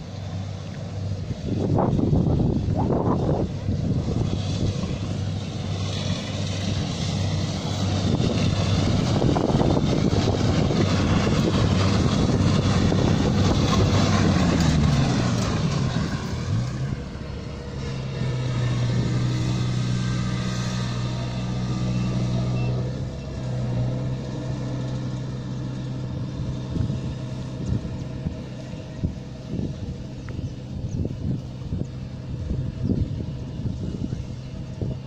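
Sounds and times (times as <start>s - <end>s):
combine harvester engine and threshing: 0.0s - 35.0s.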